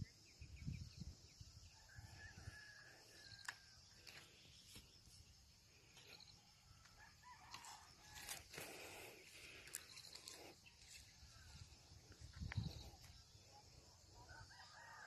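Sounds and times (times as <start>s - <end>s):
rooster crowing faintly: 6.7s - 8.6s.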